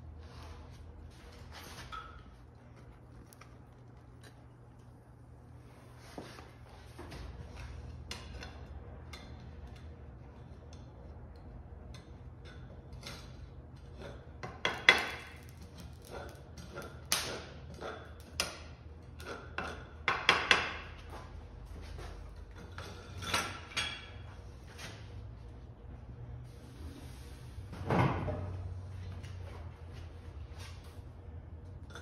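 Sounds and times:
low steady rumble: 0.0 - 13.8.

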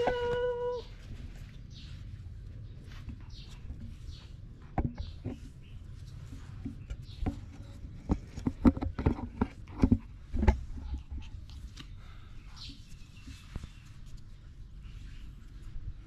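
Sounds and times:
otters scuffling knocks and taps: 2.7 - 11.9.

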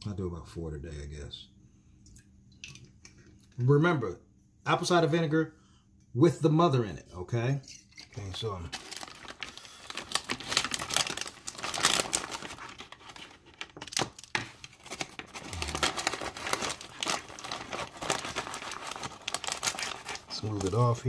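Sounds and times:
plastic bag crinkling: 8.2 - 21.0.

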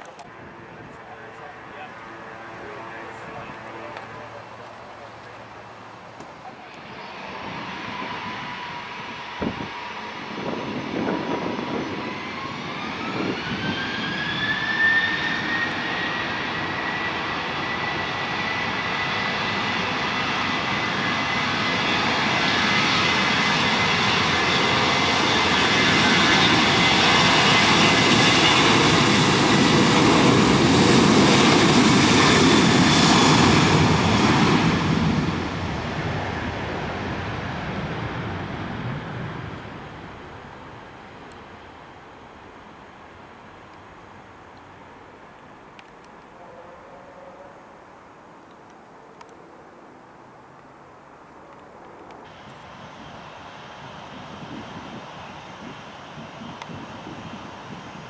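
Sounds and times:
airliner jet noise: 0.0 - 45.1, 51.3 - 58.0
jet engines spooling up: 6.3 - 40.2, 52.1 - 58.0.

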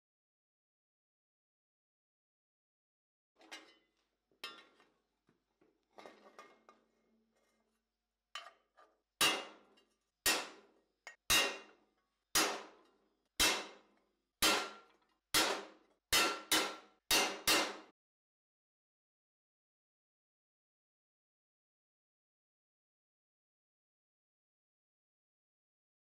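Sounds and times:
hammer striking steel tool: 9.2 - 17.9.

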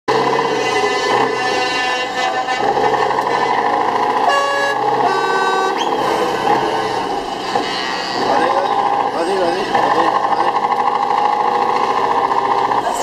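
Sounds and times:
truck air horns honking: 0.1 - 8.9
truck engine running: 0.1 - 13.0.

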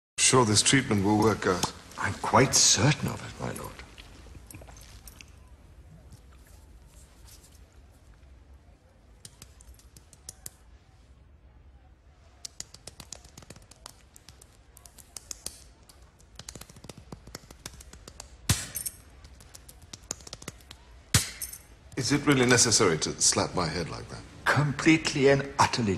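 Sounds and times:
hands slapping a scalp: 9.2 - 10.6, 12.2 - 21.6.

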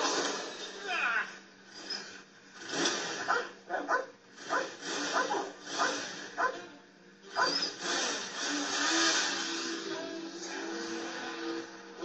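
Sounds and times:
dog barking on tv speaker: 3.2 - 6.7, 7.3 - 7.6.

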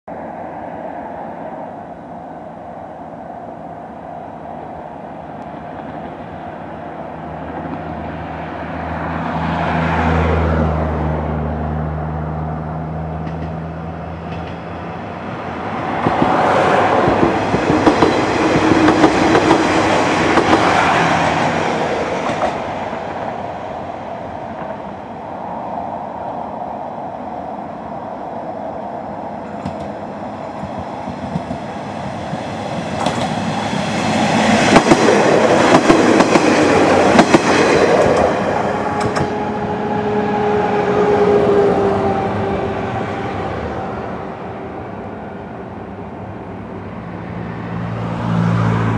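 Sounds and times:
train wheels on rails clicking: 16.0 - 23.3, 29.4 - 39.5.

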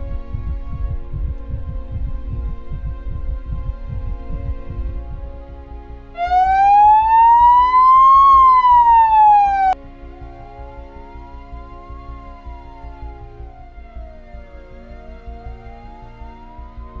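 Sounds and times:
background music: 0.0 - 17.0
ambulance siren wailing: 6.2 - 17.0.

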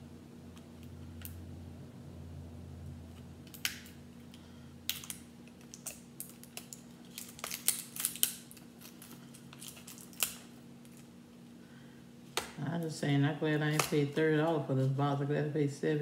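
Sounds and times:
faint steady hum: 0.0 - 16.0
cardboard box and wrapping crackling: 5.7 - 11.1.

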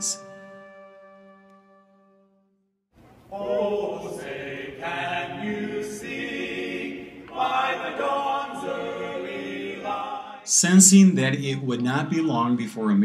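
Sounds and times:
choir singing held chords: 3.3 - 10.7.

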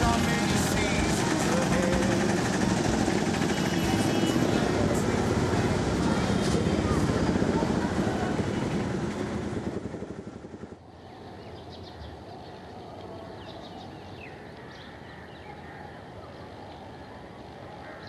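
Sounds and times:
street traffic noise: 0.0 - 18.0.

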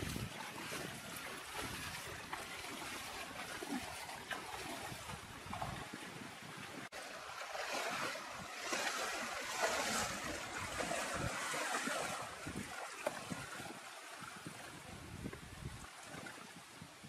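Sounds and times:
river water rushing: 6.9 - 14.6.

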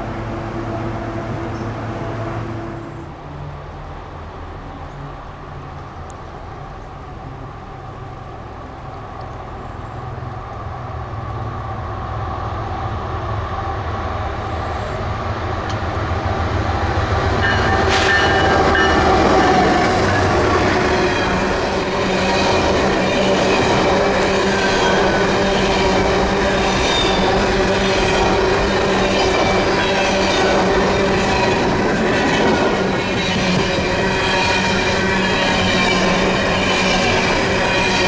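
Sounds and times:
locomotive engine drone: 0.0 - 38.0
train wheels on rails: 0.0 - 38.0
train car clank: 17.4 - 20.4.

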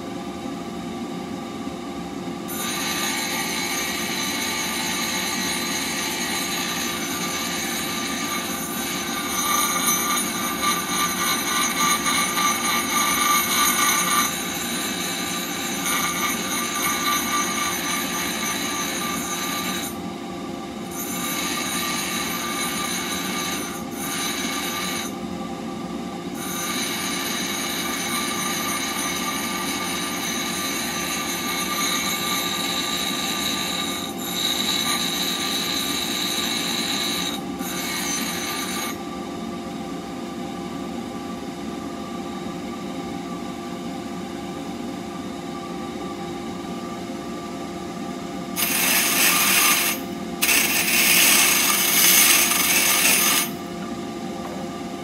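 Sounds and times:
steel blade grinding on wheel: 2.5 - 20.0, 20.8 - 25.2, 26.4 - 39.0, 48.6 - 53.6
bench grinder motor humming: 48.6 - 53.6.

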